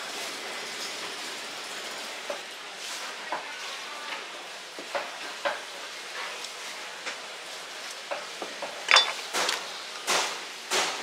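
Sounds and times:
knife clinking with metallic ring: 8.9s - 9.2s.

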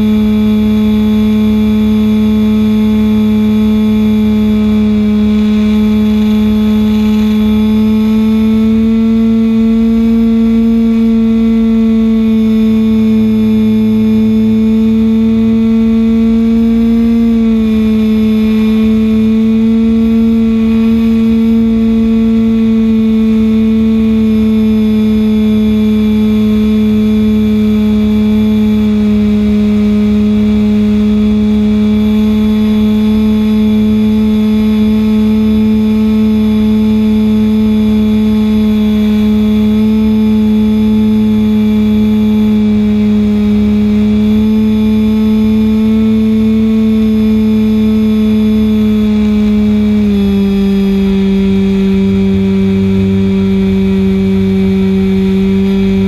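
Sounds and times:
model plane engine running: 0.0s - 56.0s
wind rumble on microphone: 0.0s - 56.0s.

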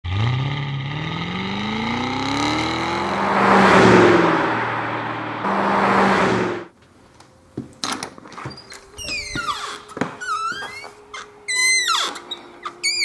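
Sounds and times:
car engine accelerating: 0.0s - 6.7s
steady engine note: 1.2s - 6.7s
loud rushing pass-by: 2.2s - 6.7s.

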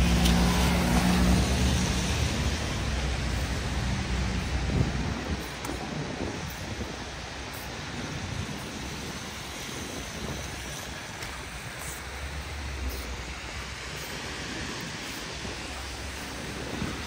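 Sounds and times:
passing vehicle low rumble: 0.0s - 5.6s
rain hissing on wet road: 0.0s - 17.0s
traffic going by: 0.0s - 17.0s.

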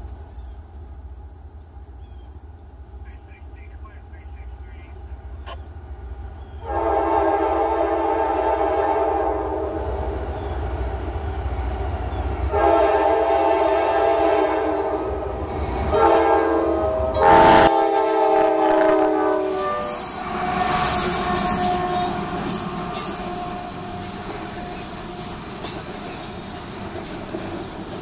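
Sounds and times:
locomotive air horn: 6.6s - 10.1s, 12.5s - 15.2s, 15.9s - 25.3s.

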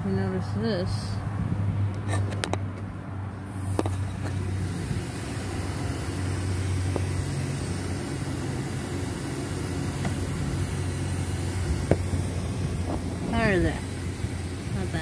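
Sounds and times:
low mechanical hum: 0.0s - 15.0s
car parts clicking and knocking: 1.9s - 3.0s, 3.7s - 4.5s, 6.8s - 7.2s, 9.8s - 10.3s, 11.8s - 13.2s.

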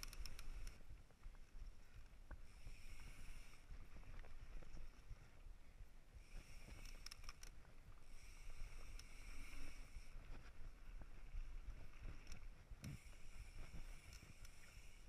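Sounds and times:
bike rattles and clicks: 0.0s - 5.2s, 6.3s - 15.0s.

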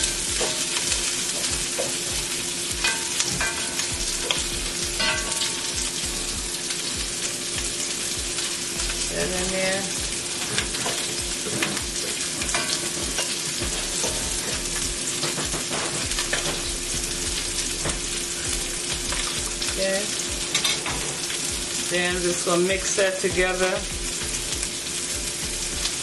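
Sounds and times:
spatula scraping and tapping pan: 0.0s - 6.0s, 10.1s - 16.8s, 20.4s - 21.4s
fish sizzling in hot oil: 0.0s - 26.0s.

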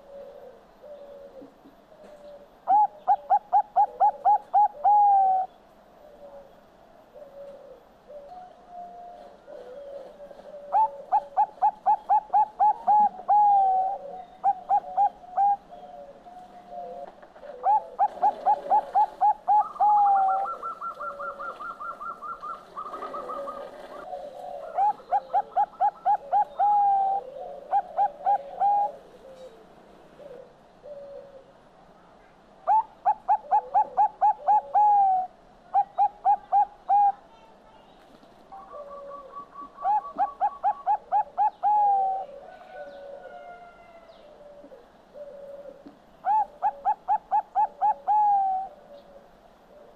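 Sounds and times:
dove cooing: 0.0s - 31.7s, 32.6s - 37.5s, 38.5s - 49.9s
faint bird chirps: 35.7s - 43.1s.

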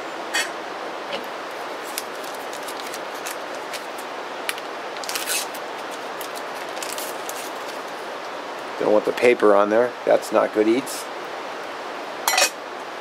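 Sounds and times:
paper wrapper crinkling: 1.6s - 8.0s.

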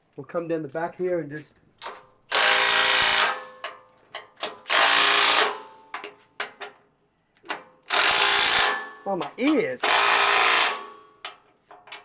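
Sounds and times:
impact wrench hammering: 1.8s - 6.7s, 7.5s - 12.0s.

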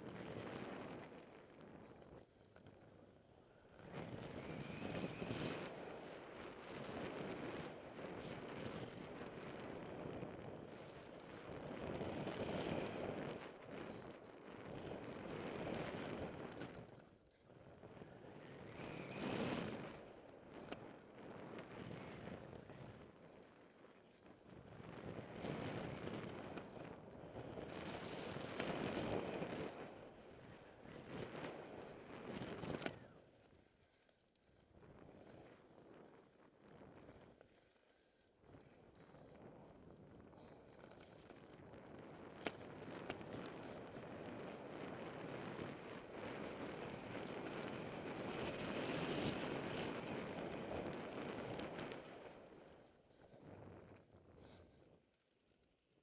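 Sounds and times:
tyres rolling on dirt trail: 36.9s - 54.1s.

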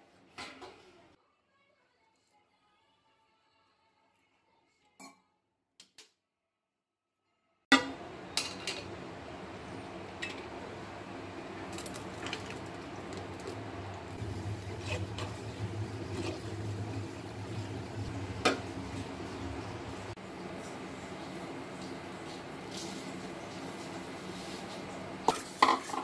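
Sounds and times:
steel kitchenware clinking: 7.7s - 9.0s, 10.2s - 10.6s, 25.3s - 26.0s
low steady hum: 7.8s - 22.0s.

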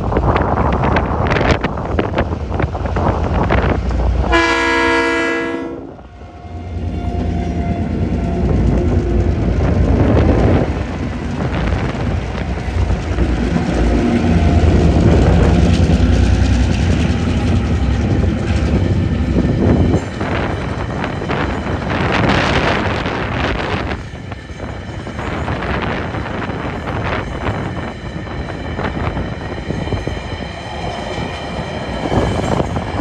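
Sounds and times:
wind buffeting microphone: 0.0s - 5.2s, 5.9s - 33.0s
train rumbling past: 0.0s - 33.0s
locomotive horn blast: 4.3s - 6.0s.

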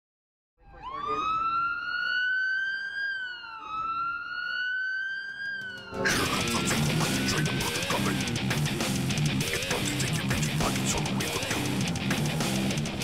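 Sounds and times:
siren wailing: 0.6s - 8.3s
loud electric guitar music: 5.6s - 13.0s.

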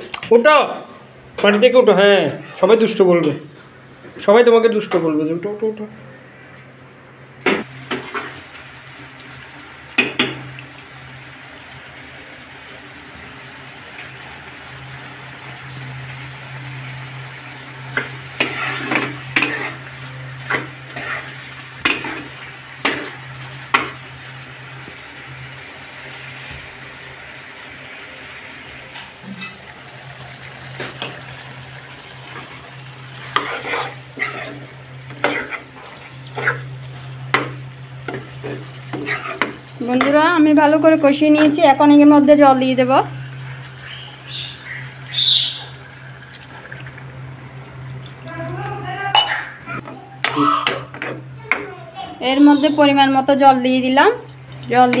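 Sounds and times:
food sizzling: 0.0s - 55.0s
metal spatula scraping a wok: 18.4s - 19.9s, 20.5s - 23.2s, 33.2s - 36.7s, 38.1s - 39.6s.

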